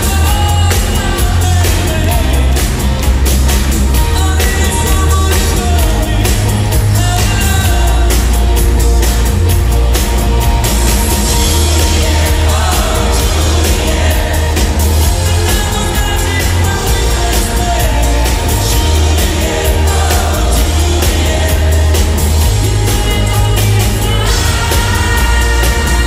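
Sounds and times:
man singing: 0.0 - 2.9, 4.0 - 8.8, 11.3 - 26.0
band playing pop song: 0.0 - 26.0.

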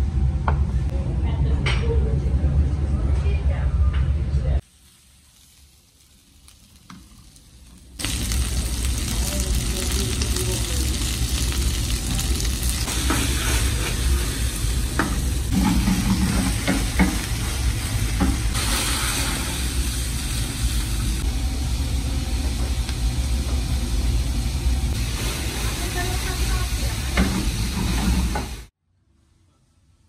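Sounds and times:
vegetables sizzling in oil: 4.6 - 23.8, 24.4 - 28.7.

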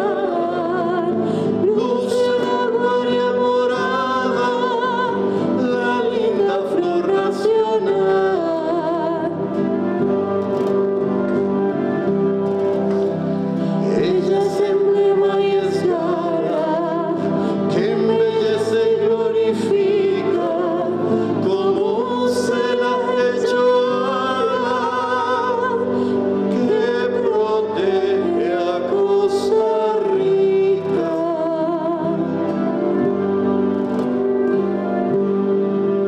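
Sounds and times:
woman singing with vibrato: 0.0 - 9.6, 13.8 - 32.9
acoustic guitar: 0.0 - 36.0.

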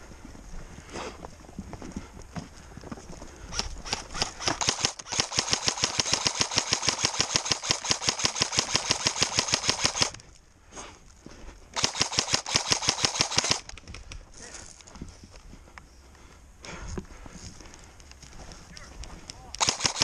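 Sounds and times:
airsoft rifle firing bursts: 3.5 - 10.2, 11.8 - 13.7, 19.6 - 20.0.

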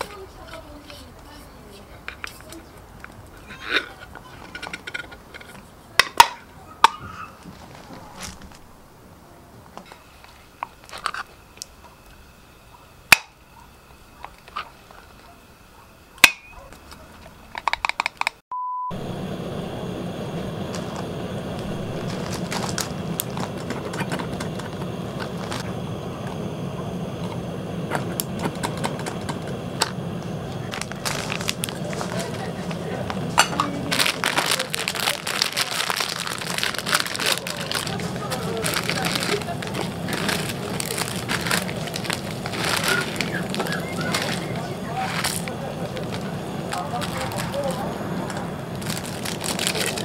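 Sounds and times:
wooden stand parts clicking: 17.5 - 18.4
short beep: 18.5 - 19.0
gas burner rushing: 18.9 - 50.0.

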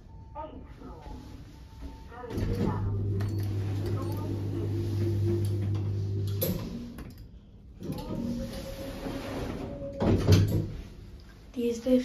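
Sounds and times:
door motor humming: 2.6 - 7.2
sliding doors knocking shut: 7.9 - 10.8.

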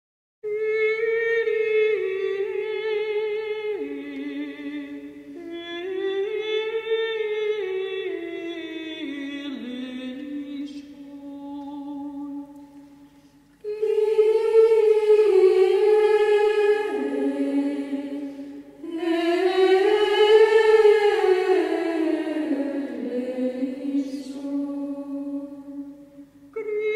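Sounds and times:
person singing chant-like melody: 13.6 - 26.9.

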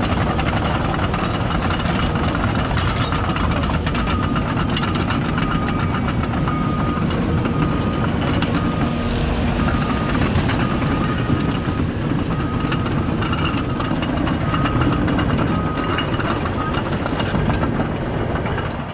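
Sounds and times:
heavy machine engines rumbling: 0.0 - 18.9
backup alarm beeping: 3.1 - 16.9.

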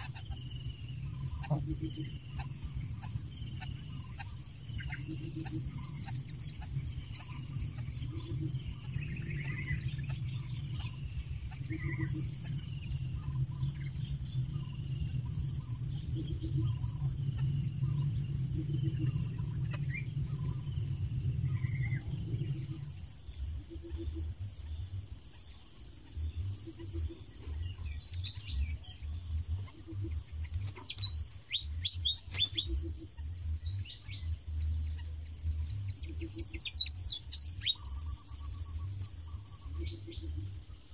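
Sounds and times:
bird chirps: 0.0 - 23.0, 23.6 - 40.9
insect chorus: 0.0 - 40.9
low rumble: 0.5 - 25.0.

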